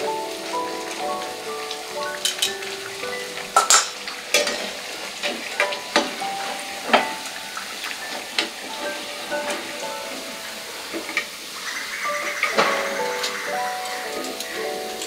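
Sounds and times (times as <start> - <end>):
oil sizzling: 0.0 - 15.0
skimmer clinking and scraping: 1.6 - 11.2.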